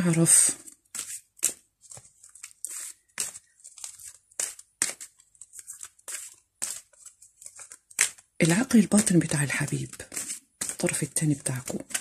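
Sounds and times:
cards being shuffled: 0.0s - 12.0s.

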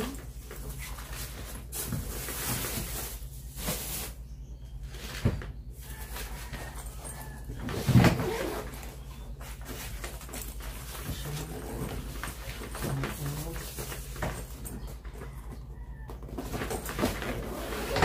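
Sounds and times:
fabric lining rustling and scraping: 5.8s - 14.6s.

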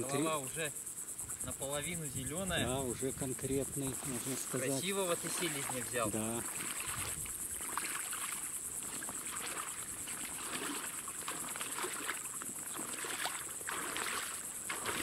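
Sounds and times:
insect chirring: 0.0s - 15.0s
wading through shallow water: 2.6s - 15.0s.

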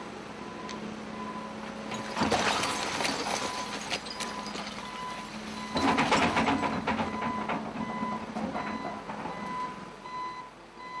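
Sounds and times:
bulldozer engine running: 0.0s - 11.0s
metal clanking: 1.9s - 9.6s.

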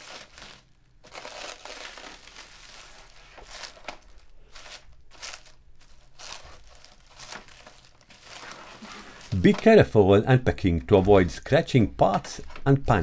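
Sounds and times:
plastic wrap crinkling and rustling: 0.0s - 9.9s.

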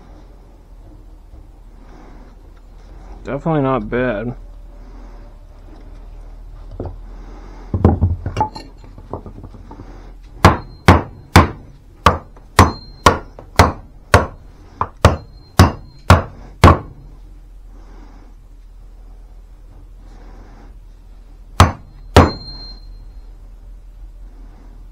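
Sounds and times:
axe chopping wood: 10.4s - 16.9s, 21.6s - 22.5s.

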